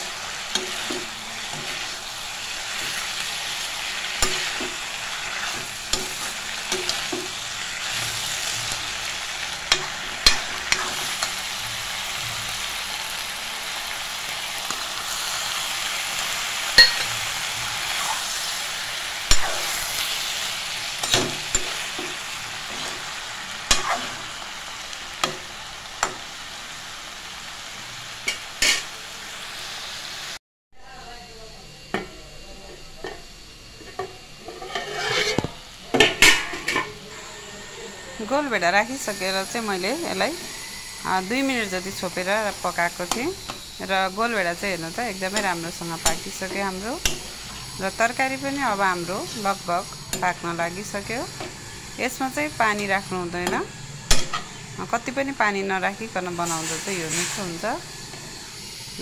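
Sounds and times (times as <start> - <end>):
metal spatula scraping pan: 0.0 - 2.1, 9.7 - 11.4, 28.3 - 28.9, 34.4 - 35.5
vegetables sizzling in a pan: 0.0 - 30.4, 31.8 - 59.0.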